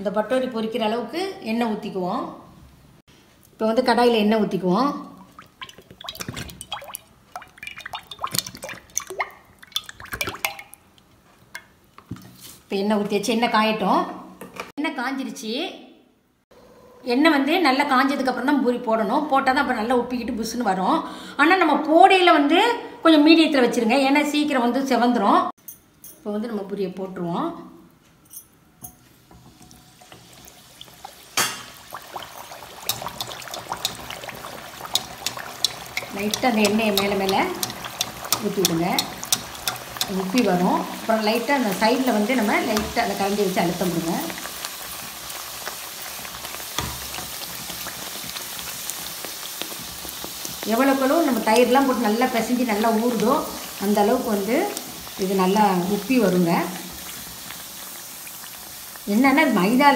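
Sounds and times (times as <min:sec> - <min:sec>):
oil sizzling and crackling: 0:05.0 - 0:12.7, 0:29.0 - 0:59.9
oil popping: 0:05.2 - 0:12.3, 0:29.3 - 0:41.1.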